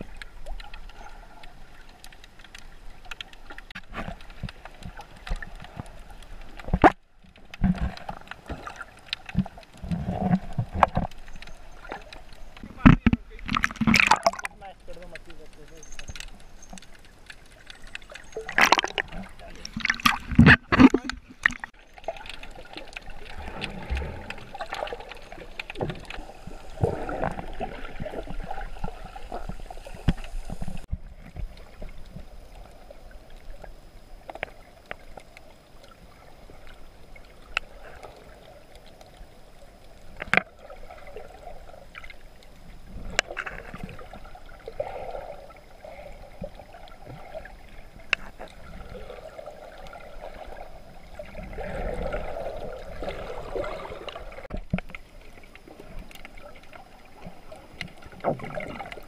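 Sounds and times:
water gurgling and sloshing: 0.0 - 59.0.

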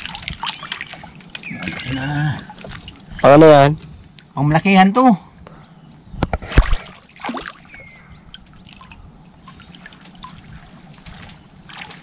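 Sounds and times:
small splashes: 0.0 - 3.2, 6.4 - 12.0
water dripping and trickling: 0.0 - 3.8, 6.9 - 12.0.

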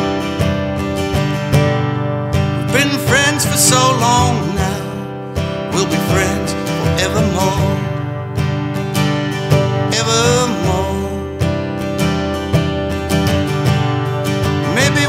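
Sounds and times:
acoustic guitar strumming: 0.0 - 15.0
wordless vocal line: 2.6 - 5.0, 9.9 - 11.3, 14.6 - 15.0.

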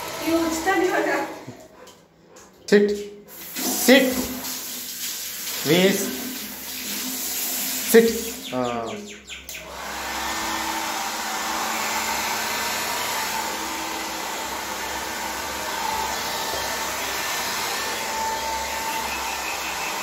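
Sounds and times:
hair dryer blowing air: 9.6 - 20.0.

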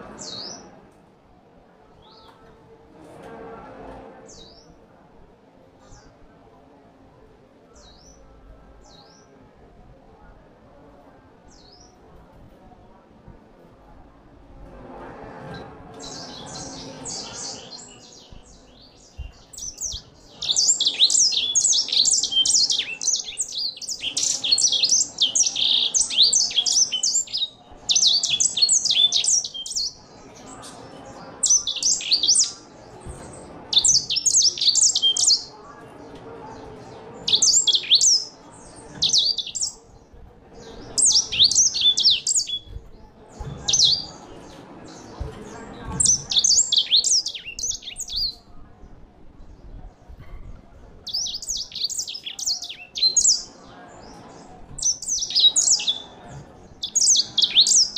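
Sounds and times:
finch singing: 16.0 - 30.6, 31.4 - 35.5, 37.2 - 39.8, 40.7 - 44.2, 46.0 - 48.4, 51.0 - 53.6, 54.2 - 56.2, 56.8 - 57.9.

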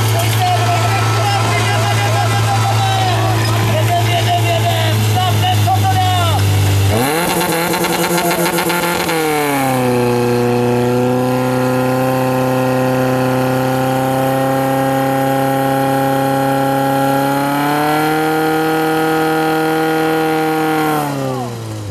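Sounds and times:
fire pump engine running: 0.0 - 21.9.

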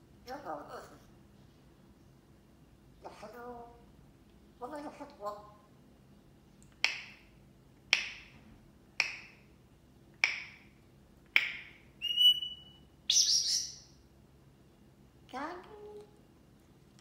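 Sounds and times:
parrot clicks: 6.6 - 7.3, 7.9 - 8.4, 10.2 - 10.7
parrot whistle: 11.4 - 13.9
parrot squawk: 12.0 - 13.8.

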